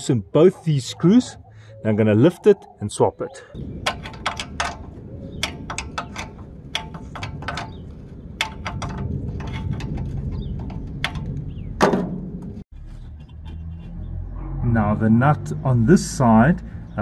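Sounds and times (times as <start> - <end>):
metal clunk: 3.8 - 12.6
ratchet spanner clicking: 3.9 - 11.4.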